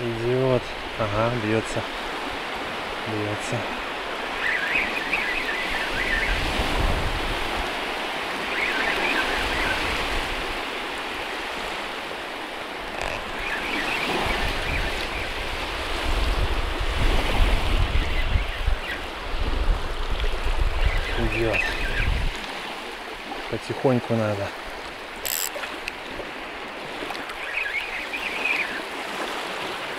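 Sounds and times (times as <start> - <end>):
waves lapping at shore: 0.0 - 17.9, 19.0 - 29.9
wind buffeting microphone: 6.3 - 7.8, 14.2 - 22.4.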